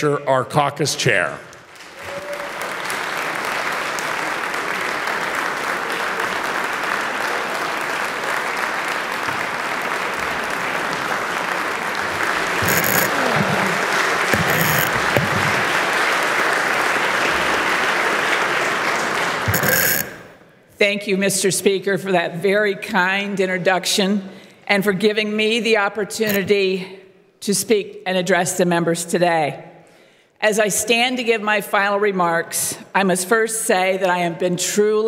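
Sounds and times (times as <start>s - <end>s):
crowd applauding: 1.7s - 20.4s.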